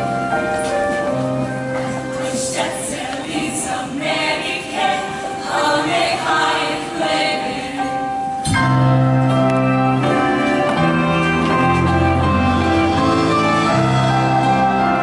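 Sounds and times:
instrumental music: 0.0 - 15.0
choir singing in harmony: 2.0 - 9.4, 11.8 - 15.0.

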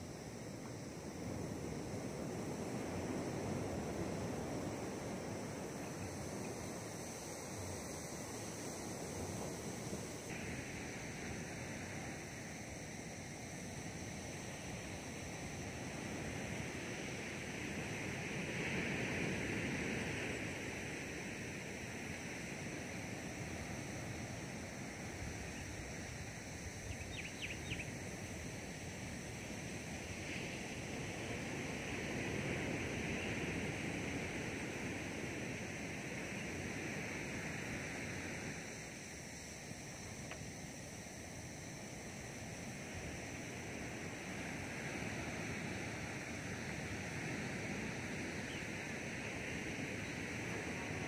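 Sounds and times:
chirps: 26.9 - 27.9.

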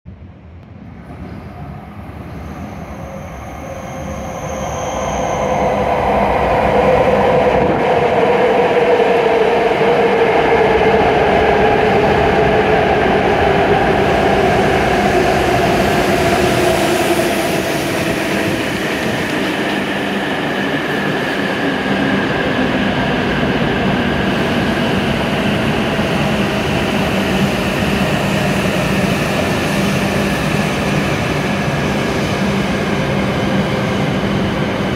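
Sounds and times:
train rumbling as it slows: 0.1 - 34.9.

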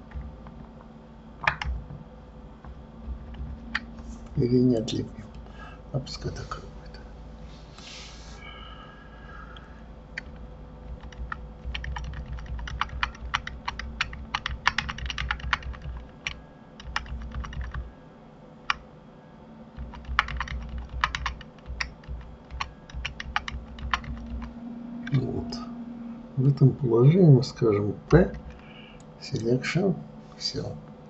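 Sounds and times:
computer keyboard keys tapping: 0.0 - 0.8, 1.4 - 2.0, 2.6 - 4.0, 10.1 - 17.9, 19.8 - 25.2, 28.1 - 29.1.

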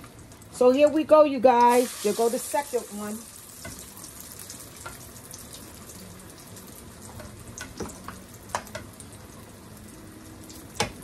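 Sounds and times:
oil sizzling in a frying pan: 0.0 - 11.0.

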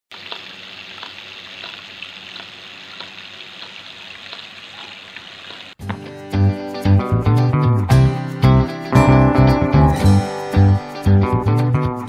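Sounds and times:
fountain water trickling over stones: 0.1 - 5.8.

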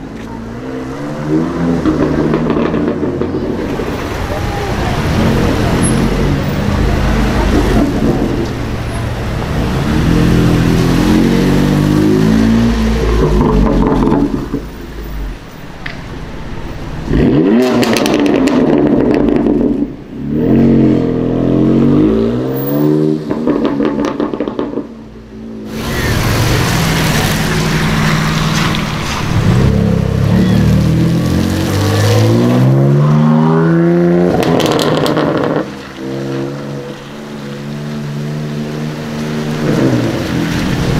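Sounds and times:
exhaust crackling and popping: 1.7 - 4.3, 5.2 - 16.1, 17.0 - 20.2, 23.2 - 25.1, 25.7 - 33.2, 34.3 - 40.9.

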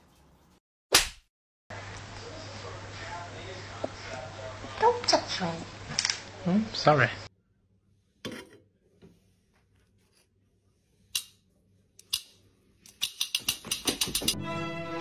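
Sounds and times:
orchestral string music: 14.4 - 15.0.

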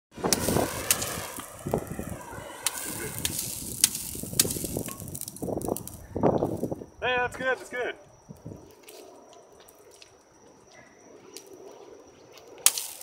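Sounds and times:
low uneven rushing noise: 0.1 - 7.8
burning charcoal crackling: 0.1 - 10.4, 11.3 - 13.0
sharp pops: 0.2 - 6.7.

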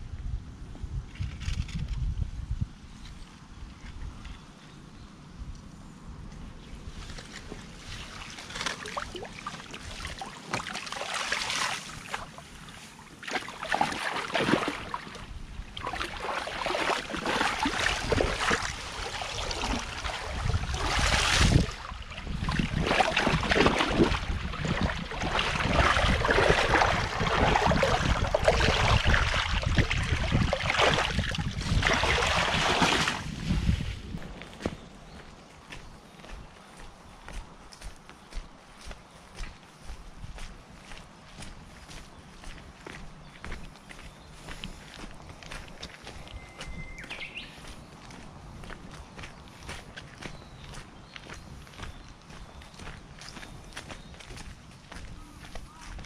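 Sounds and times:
boots wading through water: 7.2 - 56.0
net dragged through water: 15.8 - 34.0.

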